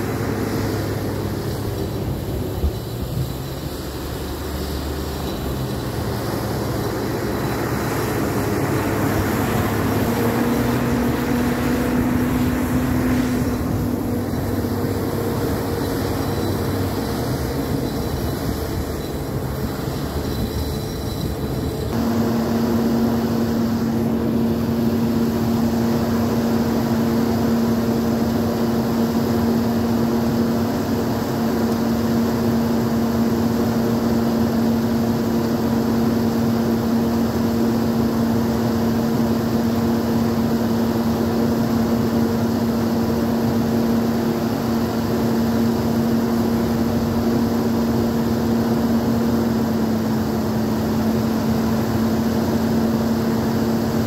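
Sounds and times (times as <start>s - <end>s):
tracked vehicle engine droning: 0.0s - 54.0s.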